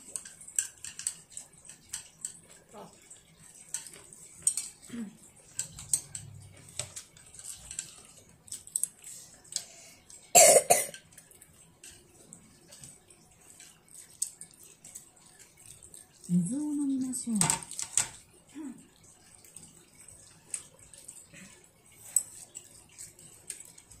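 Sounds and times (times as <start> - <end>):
child coughing: 10.3 - 11.0.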